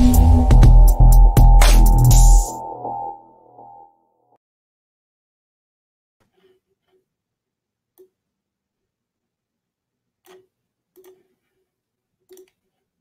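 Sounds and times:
faint clicks and taps: 0:10.2 - 0:11.6, 0:12.2 - 0:12.8.

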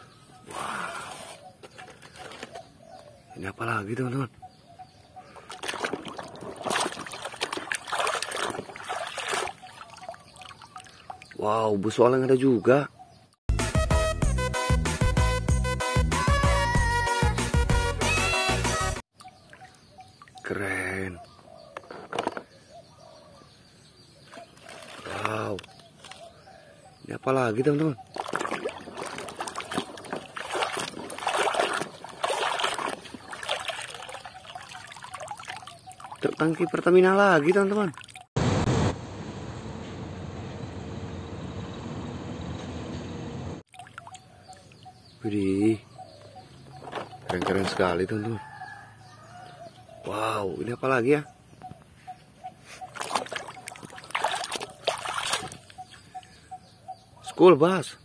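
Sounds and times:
water sloshing and splashing: 0:05.4 - 0:11.4, 0:24.4 - 0:25.4, 0:27.9 - 0:38.3, 0:43.7 - 0:44.8, 0:52.8 - 0:55.9.

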